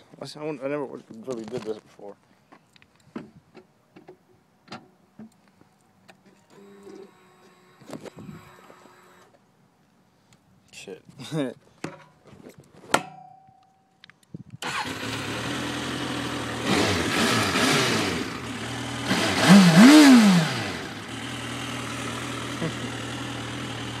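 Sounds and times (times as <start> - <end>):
motorcycle engine starting and revving: 14.6 - 24.0.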